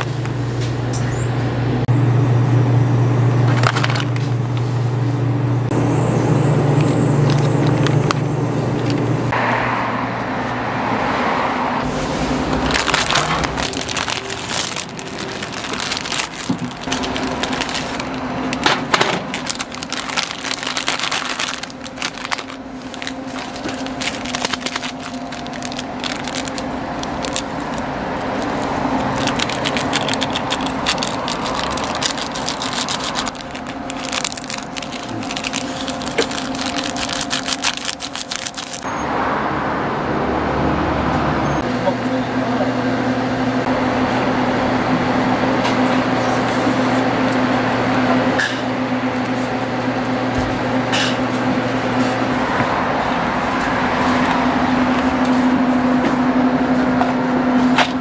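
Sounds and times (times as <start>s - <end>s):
plastic wrappers crinkling: 3.6s - 4.2s, 6.8s - 9.0s, 11.9s - 38.9s.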